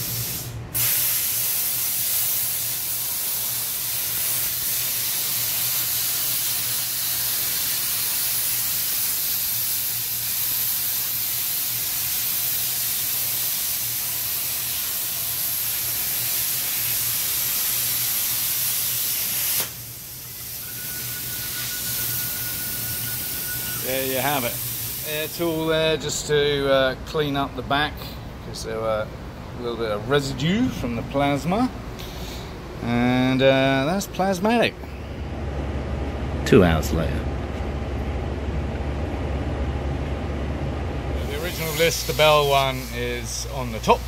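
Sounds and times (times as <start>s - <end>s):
plasma arc hissing: 0.0s - 25.8s, 41.2s - 44.0s.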